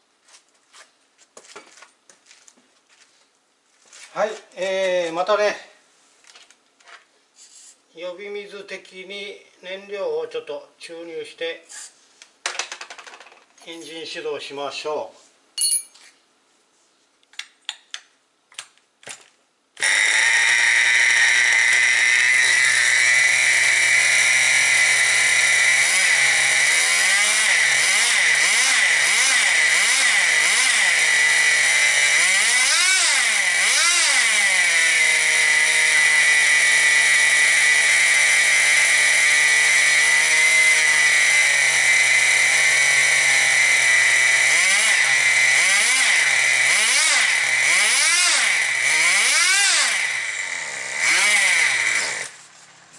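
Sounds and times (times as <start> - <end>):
small engine whining and revving: 19.8 - 52.4.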